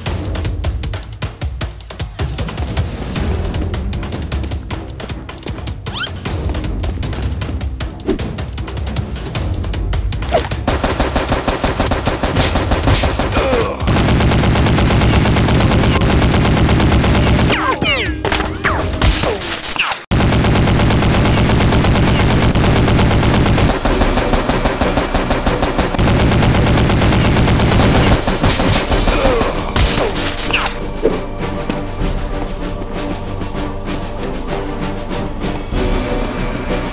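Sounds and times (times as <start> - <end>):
machine-gun fire: 10.6 - 17.5, 20.1 - 29.8.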